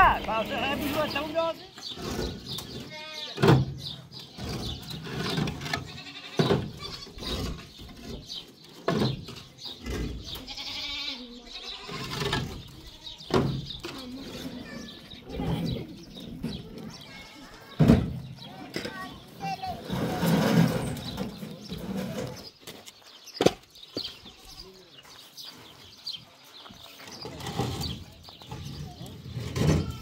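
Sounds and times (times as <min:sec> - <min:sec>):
goats bleating: 0:02.8 - 0:03.4, 0:05.8 - 0:07.2, 0:10.4 - 0:12.2.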